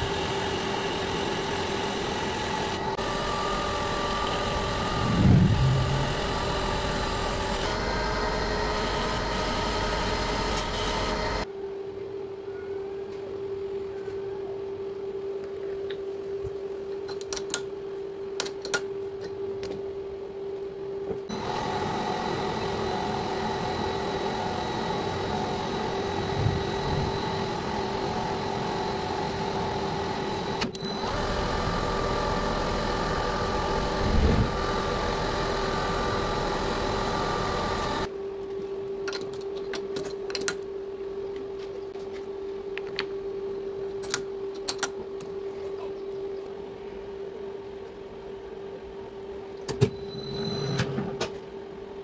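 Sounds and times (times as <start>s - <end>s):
metal lathe humming: 0.0s - 11.5s, 21.3s - 38.1s.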